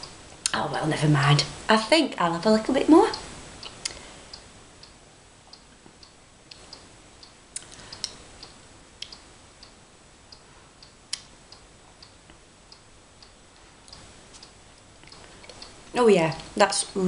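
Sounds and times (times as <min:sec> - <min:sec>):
wall clock ticking: 0:00.0 - 0:00.7, 0:01.3 - 0:17.0
sharp clicks: 0:06.0 - 0:12.2.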